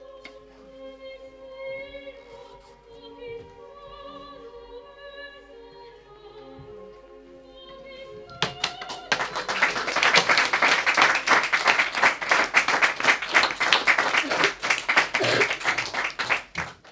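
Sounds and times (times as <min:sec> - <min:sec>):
opera music: 0:00.0 - 0:16.9
children clapping: 0:08.3 - 0:16.9.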